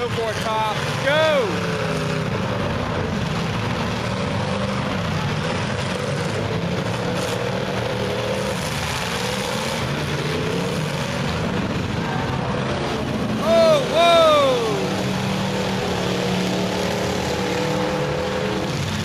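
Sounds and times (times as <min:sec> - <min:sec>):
race car engines revving: 0:00.0 - 0:19.0.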